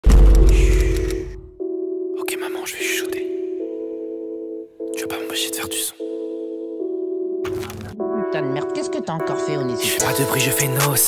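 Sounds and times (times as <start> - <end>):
deep bass boom: 0.0 - 1.6
soft synth chord: 1.4 - 7.4
held synth chord: 6.0 - 10.4.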